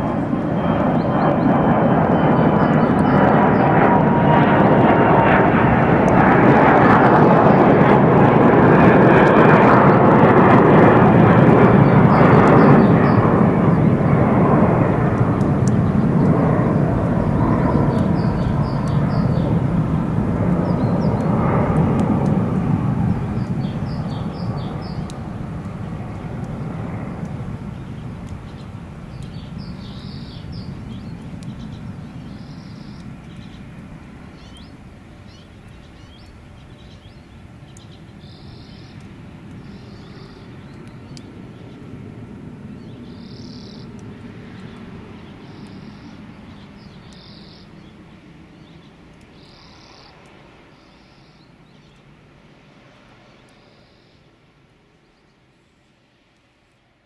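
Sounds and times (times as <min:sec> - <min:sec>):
airplane rumble overhead: 0:00.0 - 0:57.0
small bird chirping: 0:17.2 - 0:19.6, 0:27.7 - 0:33.7, 0:34.4 - 0:39.0, 0:39.6 - 0:41.8, 0:42.8 - 0:48.0, 0:48.6 - 0:52.0.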